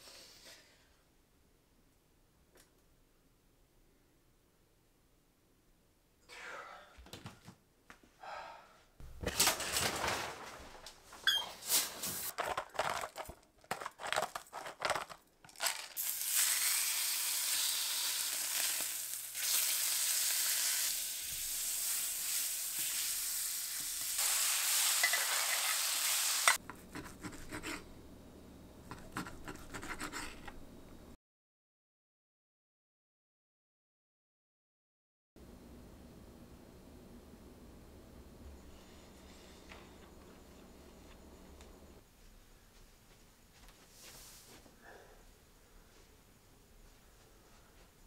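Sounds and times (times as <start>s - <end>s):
steak sizzling in a skillet: 16.0s - 26.6s.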